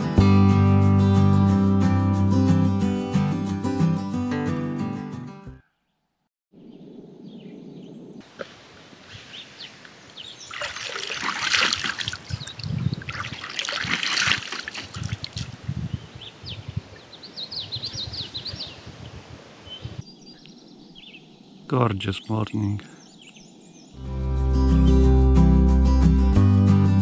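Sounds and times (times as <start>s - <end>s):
water dribbling and trickling: 8.3s - 15.6s
water splashing onto a face: 10.4s - 15.6s.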